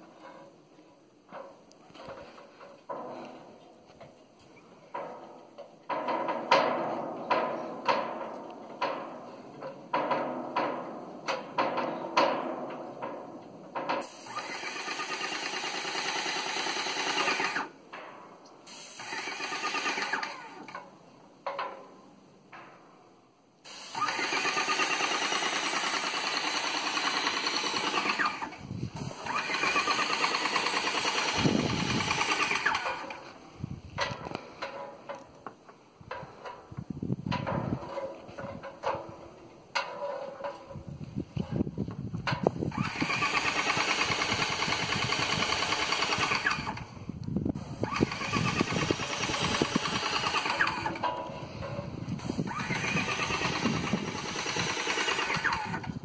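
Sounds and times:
paint sprayer spraying: 0:14.0 - 0:17.6, 0:18.7 - 0:20.2, 0:23.7 - 0:33.2, 0:42.6 - 0:46.5, 0:47.6 - 0:50.8, 0:52.2 - 0:55.7.

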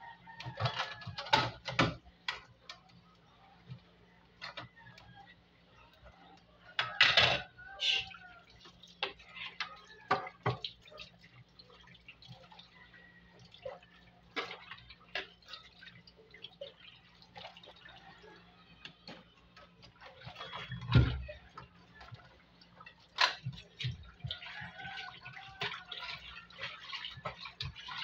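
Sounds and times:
items clinking against steel sink: 0:00.4 - 0:03.0, 0:03.7 - 0:05.1, 0:05.9 - 0:11.1, 0:18.8 - 0:28.0
water dripping and splashing: 0:05.9 - 0:28.0.

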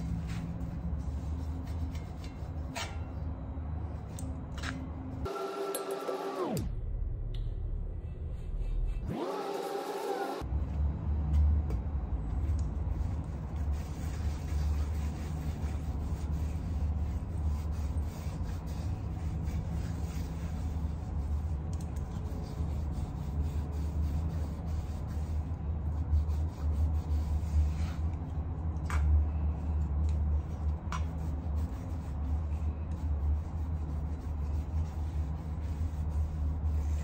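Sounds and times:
cloth wiping metal: 0:00.0 - 0:03.0, 0:12.9 - 0:28.2, 0:29.6 - 0:37.0
low hum: 0:00.0 - 0:37.0.

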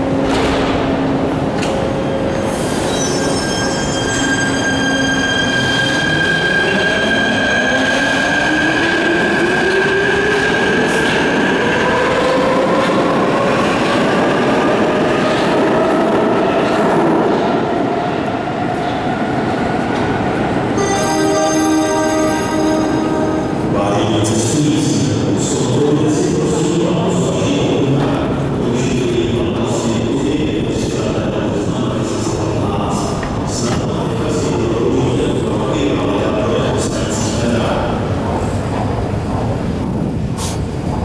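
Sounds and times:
train wheels rumbling: 0:00.0 - 0:41.0.

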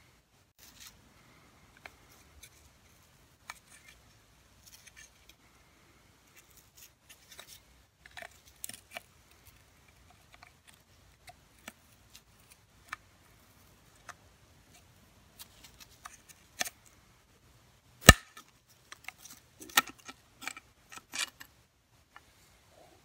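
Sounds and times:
metal blade prying plastic: 0:18.0 - 0:18.5.

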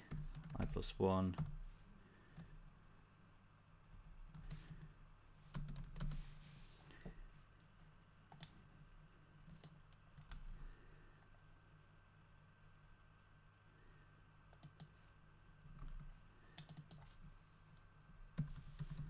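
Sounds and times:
typing on computer keyboard: 0:00.0 - 0:00.7, 0:05.5 - 0:06.2, 0:15.7 - 0:17.1, 0:18.4 - 0:19.0.

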